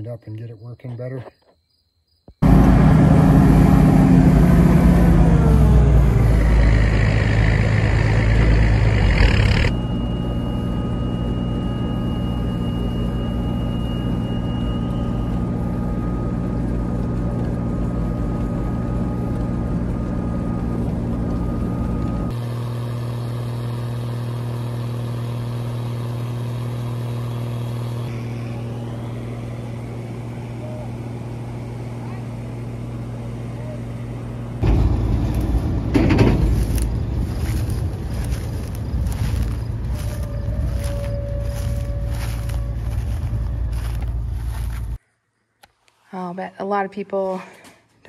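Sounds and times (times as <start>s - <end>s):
combine harvester running: 2.4s - 45.0s.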